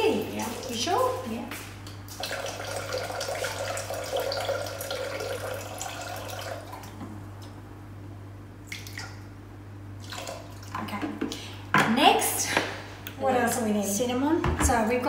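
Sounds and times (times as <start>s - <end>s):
water pouring into steel bowl: 2.2s - 6.9s.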